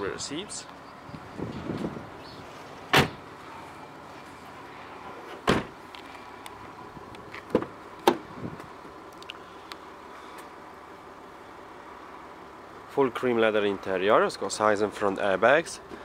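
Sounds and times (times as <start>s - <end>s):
car door shutting thuds: 2.9s - 3.3s, 5.3s - 5.8s, 7.3s - 8.7s.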